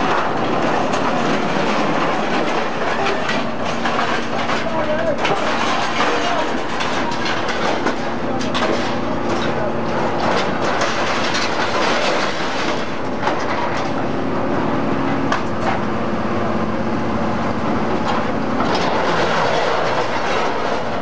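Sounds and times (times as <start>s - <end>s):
scrap metal clanking: 0.0s - 13.9s
heavy machinery humming: 0.0s - 21.0s.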